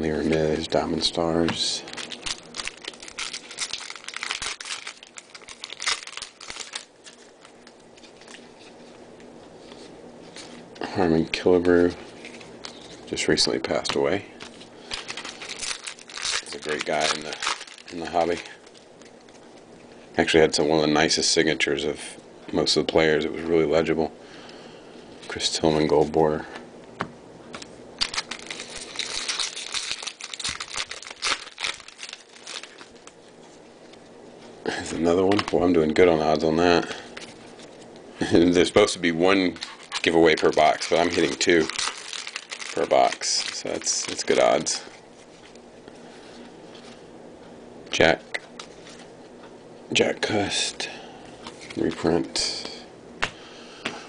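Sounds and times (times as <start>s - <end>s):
foil wrapper crinkling and tearing: 1.5s - 8.6s, 12.1s - 19.6s, 28.0s - 33.4s, 36.7s - 45.6s.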